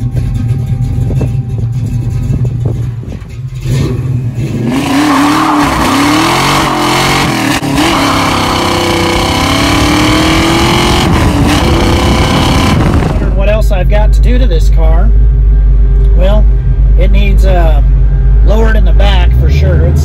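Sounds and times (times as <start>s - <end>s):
car engine revving: 0.0s - 13.6s.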